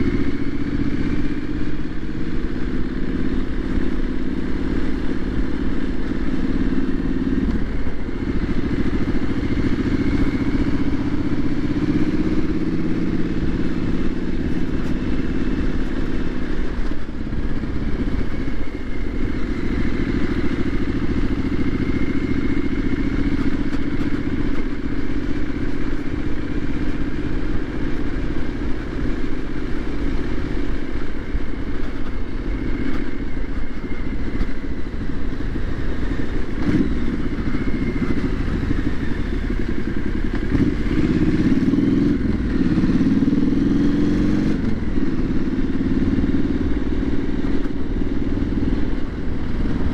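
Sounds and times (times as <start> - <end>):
motorcycle engine running: 0.0 - 49.9
wind noise: 47.6 - 49.9.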